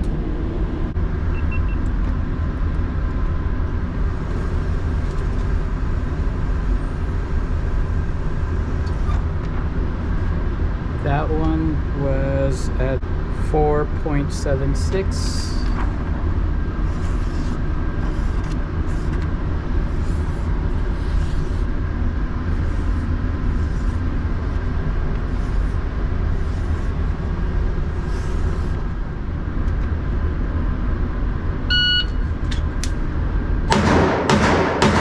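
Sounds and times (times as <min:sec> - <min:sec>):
ventilation rumble: 0:00.0 - 0:35.0
short electronic beep: 0:01.3 - 0:01.8, 0:31.7 - 0:32.2
marker scratching on paper: 0:16.8 - 0:19.2, 0:19.8 - 0:21.7, 0:22.5 - 0:27.2, 0:27.9 - 0:28.8.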